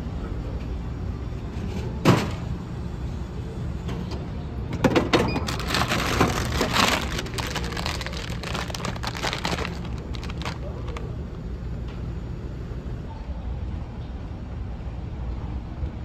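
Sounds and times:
boxed meal rustling: 5.3 - 11.1.

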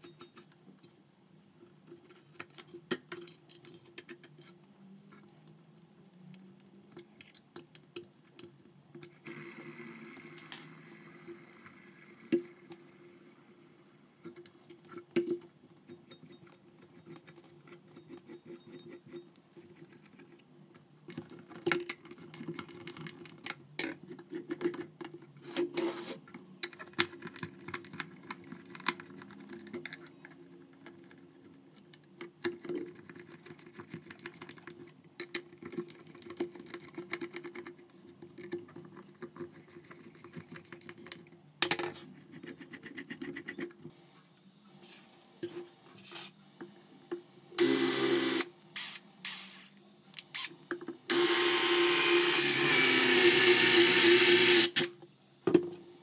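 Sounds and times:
screwdriver turning screws: 47.6 - 50.5, 51.1 - 54.9.

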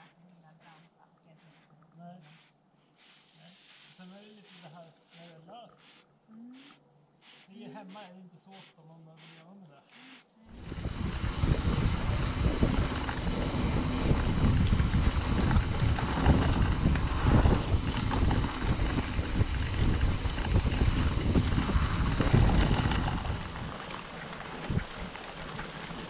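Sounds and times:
bike rumbling over ground: 10.5 - 26.0
wind buffeting microphone: 10.5 - 26.0.

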